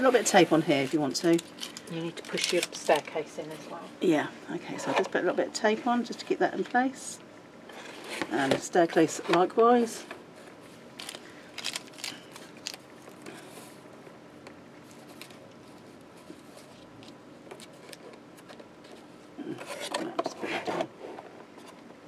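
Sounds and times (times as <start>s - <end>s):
soft rustle: 14.8s - 21.8s.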